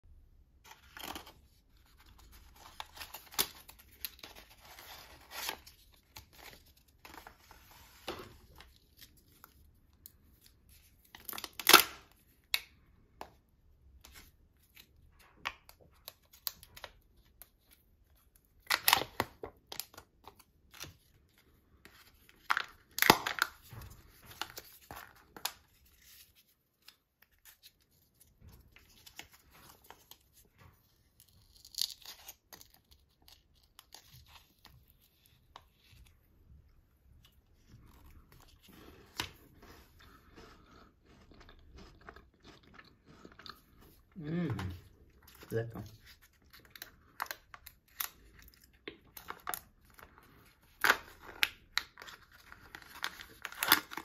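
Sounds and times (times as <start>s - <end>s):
foil wrapper tearing and crinkling: 0.7s - 9.6s, 10.8s - 12.2s, 18.6s - 21.1s, 22.2s - 26.5s, 31.2s - 35.9s, 45.9s - 54.0s.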